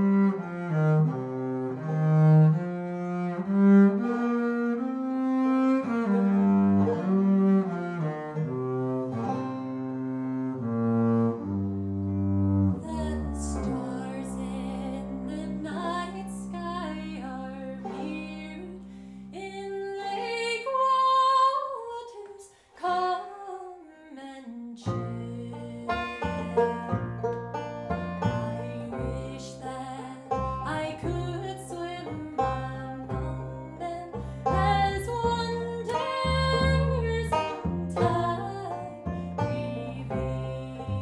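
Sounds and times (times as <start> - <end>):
upright bass: 0.0 - 20.3, 24.8 - 41.0
banjo: 0.0 - 41.0
woman singing: 12.8 - 26.2, 28.5 - 41.0.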